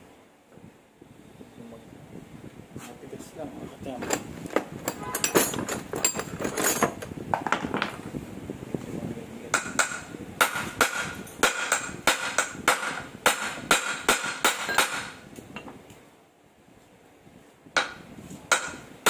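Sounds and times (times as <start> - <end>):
hammer striking metal: 9.5 - 15.2, 17.8 - 18.8.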